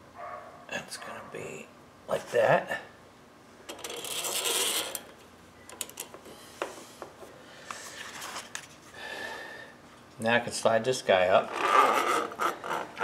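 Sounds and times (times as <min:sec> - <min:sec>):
gasket scraping on metal rods: 0:03.8 - 0:05.1.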